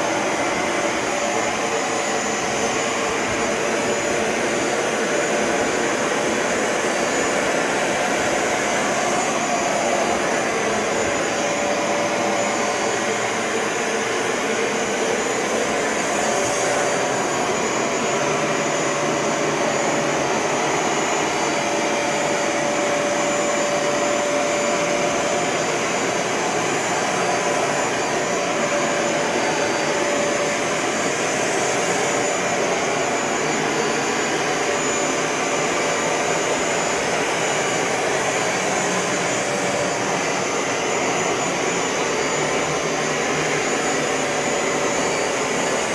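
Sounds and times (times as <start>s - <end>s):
carpet cleaner running: 0.0s - 45.9s.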